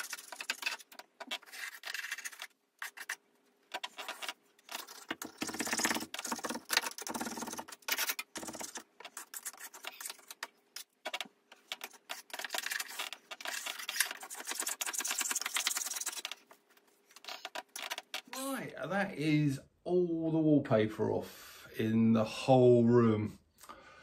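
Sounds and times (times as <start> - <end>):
scraper scraping wallpaper: 0.0 - 3.2, 11.8 - 16.4.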